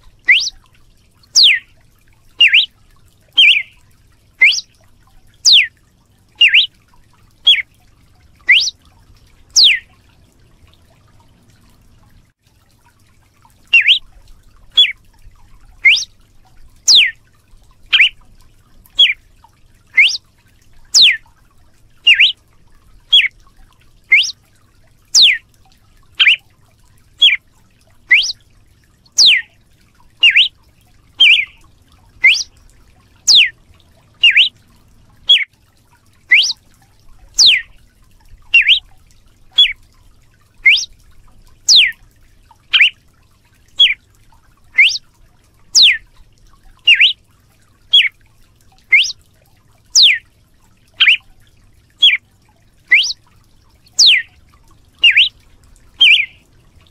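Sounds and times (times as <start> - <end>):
bird whistling sharp notes: 0.3 - 0.6, 1.4 - 1.6, 2.4 - 2.7, 3.4 - 3.8, 4.4 - 4.7, 5.5 - 5.7, 6.4 - 6.7, 8.5 - 8.7, 9.6 - 9.8, 13.7 - 14.0, 14.8 - 15.0, 15.8 - 16.1, 16.9 - 17.2, 17.9 - 18.2, 19.0 - 19.2, 20.0 - 20.2, 21.0 - 21.2, 22.1 - 22.4, 23.1 - 23.3, 24.1 - 24.4, 25.2 - 25.4, 26.2 - 26.4, 27.2 - 27.4, 28.1 - 28.4, 29.1 - 29.5, 30.2 - 30.5, 31.2 - 31.6, 32.2 - 32.5, 33.3 - 33.5, 34.2 - 34.5, 35.3 - 35.5, 36.3 - 36.6, 37.4 - 37.7, 38.6 - 38.8, 39.6 - 39.8, 40.6 - 40.9, 41.7 - 42.0, 42.7 - 43.0, 44.8 - 45.0, 45.8 - 46.0, 46.9 - 47.2, 47.9 - 48.1, 48.9 - 49.2, 50.0 - 50.2, 51.0 - 51.2, 52.0 - 52.2, 52.9 - 53.2, 54.0 - 54.3, 55.0 - 55.3, 56.0 - 56.4.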